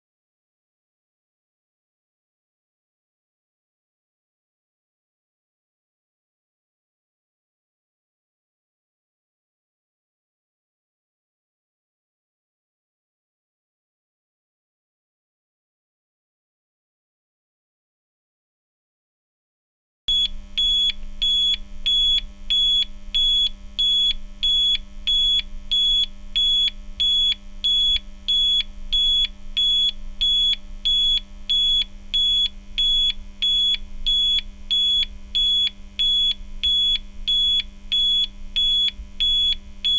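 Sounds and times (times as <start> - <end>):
faint steady hum: 20.1 - 39.9
timer alarm beeping: 20.1 - 39.9.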